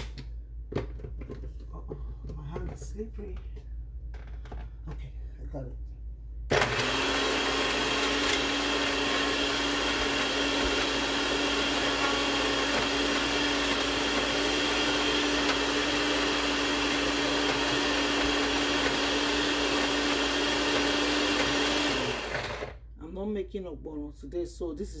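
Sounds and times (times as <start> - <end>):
blender motor whining: 6.5 - 22.8.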